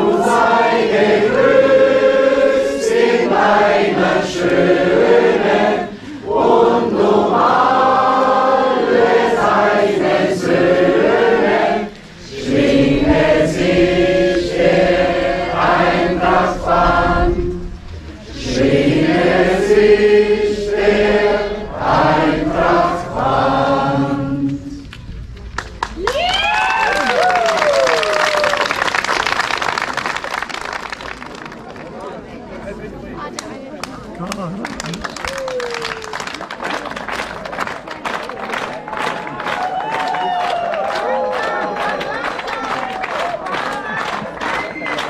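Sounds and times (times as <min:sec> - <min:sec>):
group singing in unison: 0:00.0 - 0:24.9.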